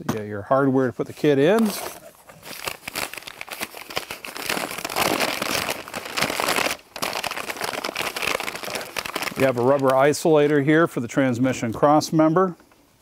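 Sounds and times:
packing paper crinkling: 1.4 - 10.7.

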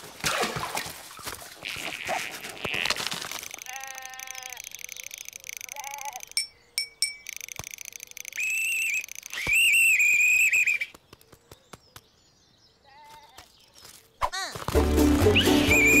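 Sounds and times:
sheep bleat: 1.6 - 3.0, 3.6 - 4.6
shrill whistle blasts: 8.4 - 10.9, 15.3 - 16.0.

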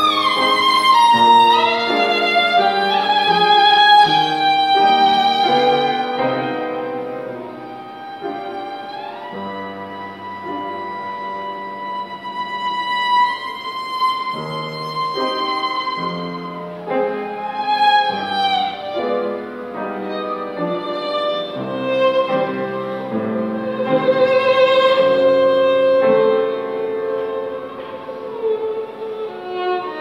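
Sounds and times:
violin playing slow melody: 0.0 - 30.0.

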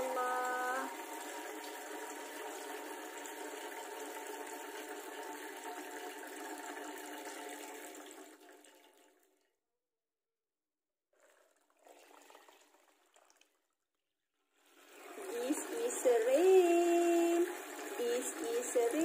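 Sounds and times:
water streams splashing into basin: 11.2 - 13.7.

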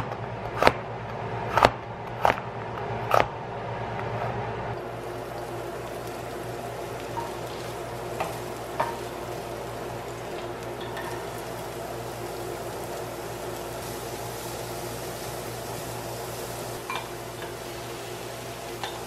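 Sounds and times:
scallions sizzling in hot oil: 4.8 - 19.0.

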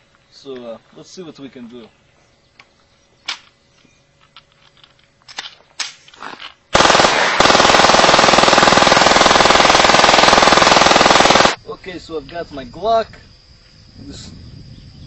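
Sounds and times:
automatic pistol firing: 6.8 - 11.6.

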